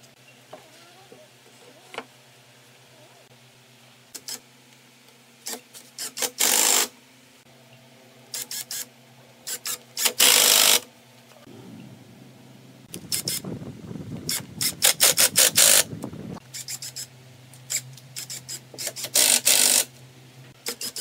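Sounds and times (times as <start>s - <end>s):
impact driver driving screws: 5.5s - 6.9s, 9.5s - 10.8s, 17.7s - 19.9s.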